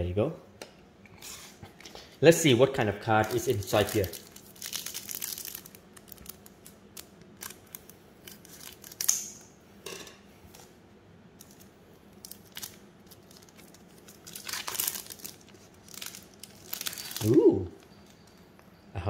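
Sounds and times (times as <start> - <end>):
foil wrapper crinkling: 3.0 - 9.3, 11.4 - 18.3.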